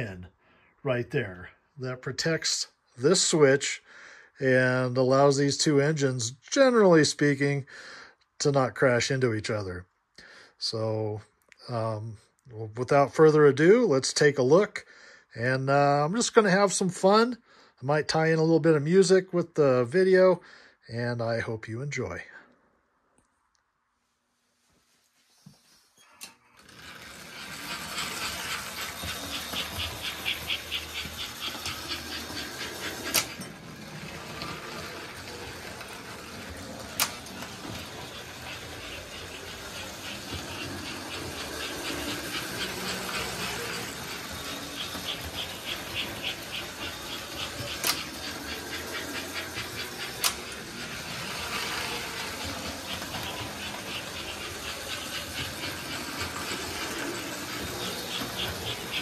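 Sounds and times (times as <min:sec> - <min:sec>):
toy train motor and wheel noise: 0:04.4 - 0:07.5, 0:25.6 - 0:59.0.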